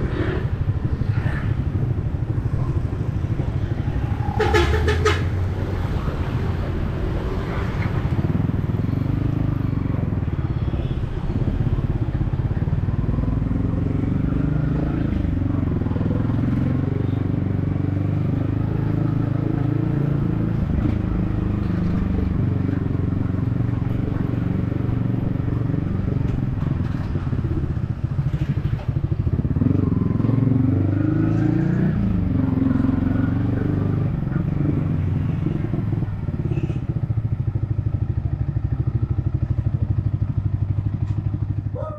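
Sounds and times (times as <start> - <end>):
motorcycle engine revving: 11.4 - 41.9.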